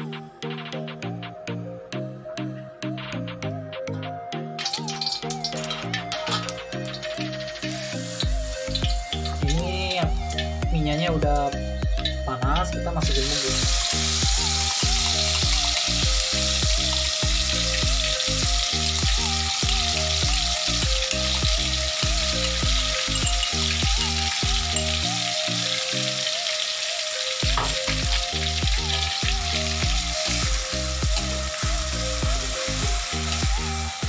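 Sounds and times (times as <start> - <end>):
spice paste sizzling in oil: 4.6 - 34.0.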